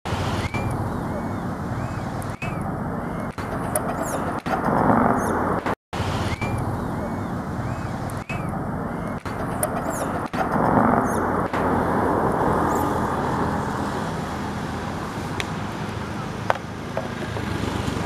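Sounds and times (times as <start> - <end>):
low outdoor rumble: 0.1 - 18.0
sharp click: 2.2 - 4.6, 8.0 - 10.6.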